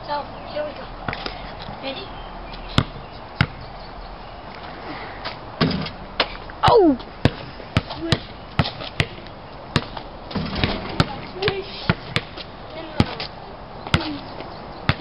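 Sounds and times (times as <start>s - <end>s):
basketball bouncing on asphalt: 2.6s - 3.7s, 7.2s - 14.2s.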